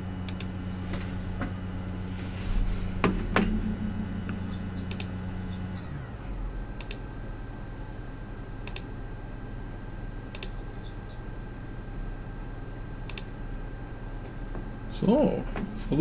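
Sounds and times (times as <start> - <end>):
faint high whine: 0.0 - 11.9
low hum: 0.0 - 16.0.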